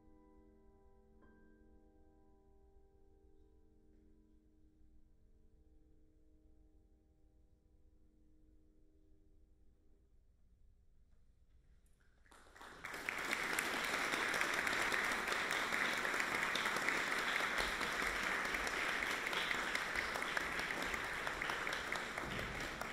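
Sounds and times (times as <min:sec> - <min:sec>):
audience applauding: 0:12.3 - 0:22.9.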